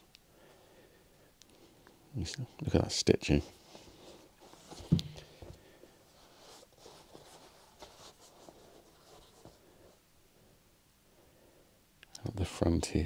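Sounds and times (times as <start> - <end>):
faint rustling and scuffs: 3.2 - 10.1.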